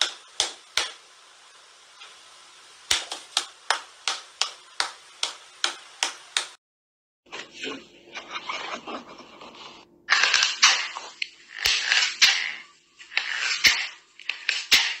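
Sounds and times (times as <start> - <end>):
faint hiss: 0.0 - 6.6.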